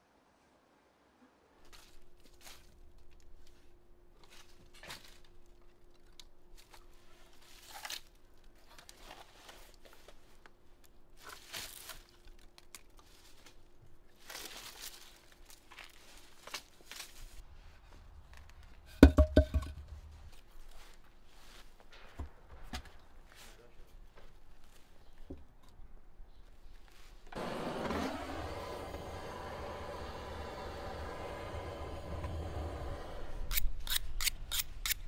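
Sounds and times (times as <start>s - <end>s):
logs dropped with wooden knocks: 18.9s - 19.9s.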